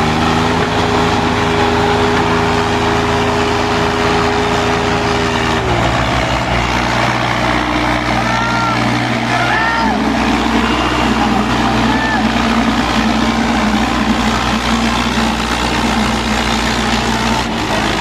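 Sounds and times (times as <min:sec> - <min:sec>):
tractor engines under load: 0:00.0 - 0:18.0
voices shouting: 0:04.0 - 0:14.8.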